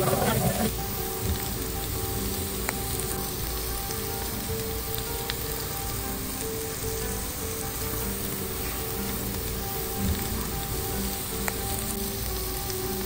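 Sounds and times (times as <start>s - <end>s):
soft background music: 0.0s - 13.0s
steak sizzling in hot oil: 0.0s - 13.0s.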